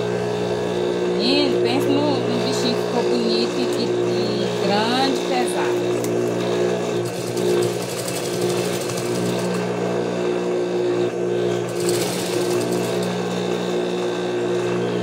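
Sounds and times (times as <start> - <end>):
sewing machine stitching: 4.2 - 9.7, 11.5 - 14.0.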